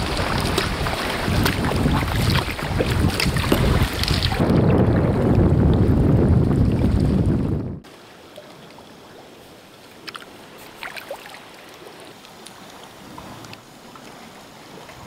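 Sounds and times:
paddle splashing in water: 0.0 - 5.2, 7.9 - 15.0
faint hiss of the sea: 7.8 - 15.0.

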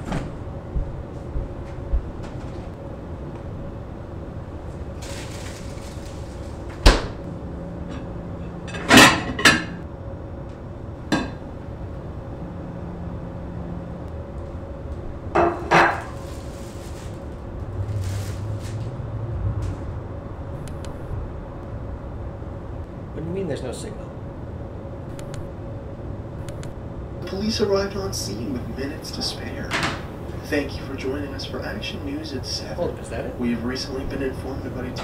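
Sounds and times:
steady low hum: 0.0 - 35.0
dishes clattering against a metal sink: 7.9 - 9.8.

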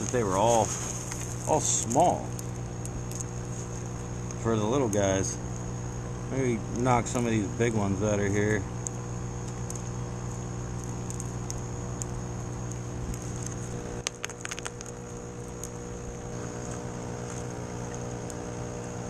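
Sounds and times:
air pump humming: 0.0 - 19.0
clay pebbles clicking into cup: 9.4 - 15.8.

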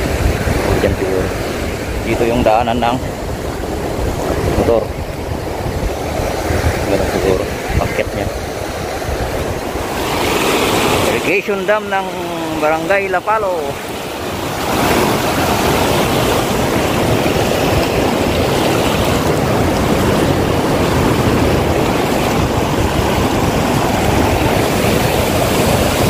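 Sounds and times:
water rushing over a weir: 0.0 - 26.0.

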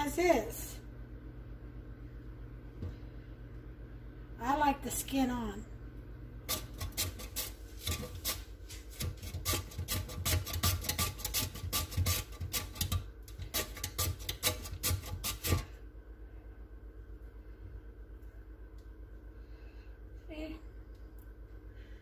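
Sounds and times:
potato rasping on metal grater: 6.5 - 15.8.

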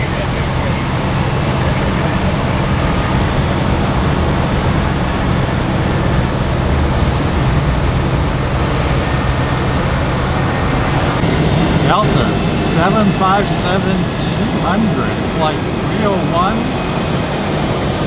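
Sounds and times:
aircraft engines running: 0.0 - 18.0
constant low hum: 0.0 - 18.0.

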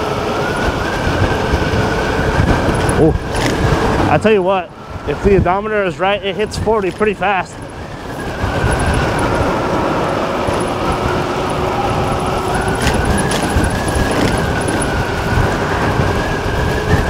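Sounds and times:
wind rushing over microphone: 0.0 - 17.0
electric motor whine: 6.7 - 17.0.

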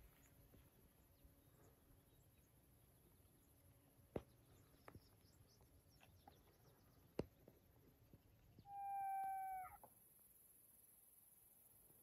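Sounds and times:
faint bird chirps: 8.4 - 9.9.

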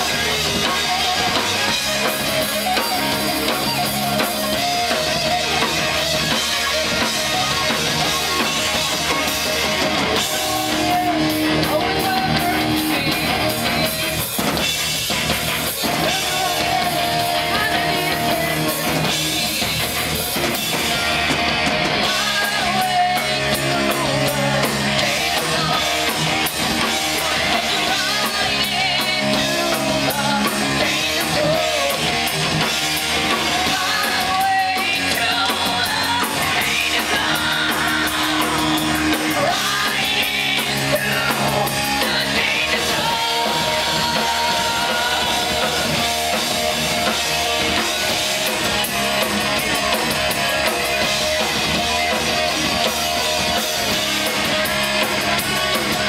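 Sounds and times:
woman singing: 0.0 - 5.8, 10.1 - 13.8, 15.8 - 20.0, 22.0 - 32.3, 33.3 - 46.3
heavy metal band playing: 0.0 - 56.0.

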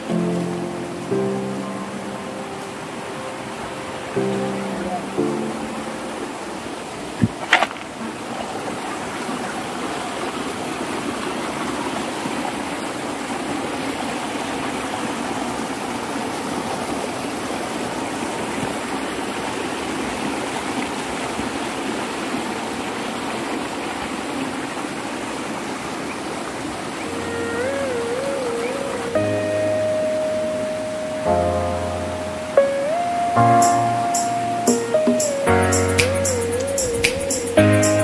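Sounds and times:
stream rushing over boulders: 0.0 - 38.0.

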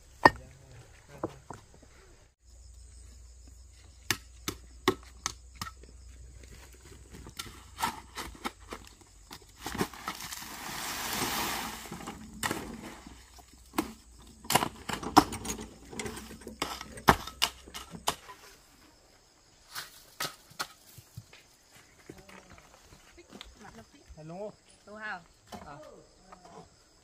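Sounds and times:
scraping rush: 9.9 - 13.3.

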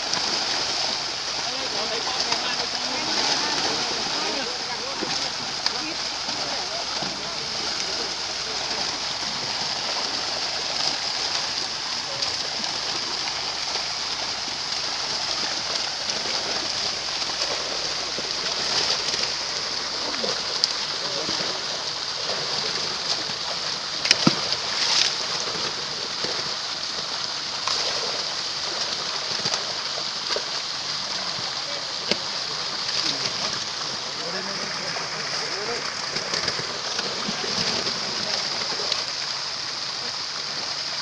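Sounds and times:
fish splashing in muddy water: 0.0 - 41.0.

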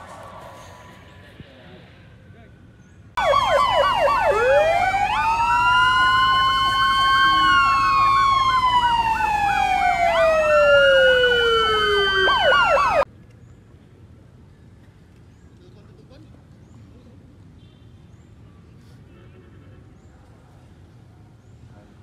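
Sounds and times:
emergency vehicle sirens wailing: 3.2 - 13.1.

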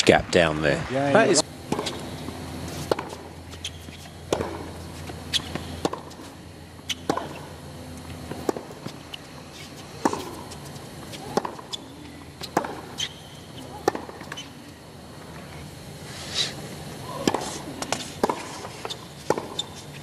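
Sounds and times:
racquets striking tennis ball: 1.6 - 14.6, 17.1 - 20.0
tennis ball bouncing: 1.6 - 14.6, 17.1 - 20.0.

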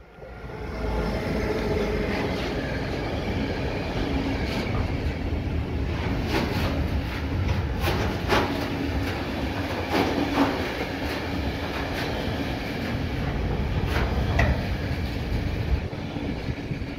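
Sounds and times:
freight train rumbling by: 0.0 - 16.9
wheels clacking over rail joints: 4.3 - 16.9.

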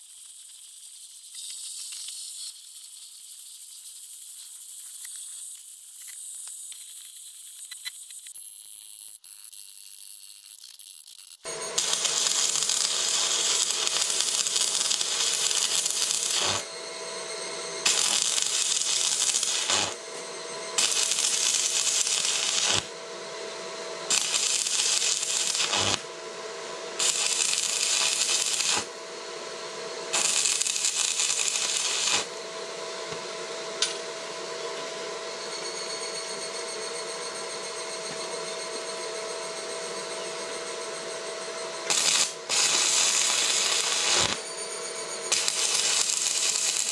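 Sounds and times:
welding arc crackling: 0.0 - 29.0, 30.0 - 32.4, 41.8 - 46.9.

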